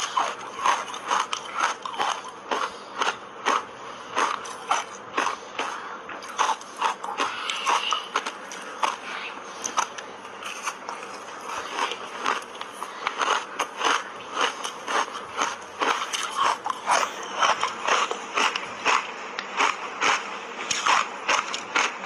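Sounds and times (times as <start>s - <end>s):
crunching ice with teeth: 0.0s - 22.0s.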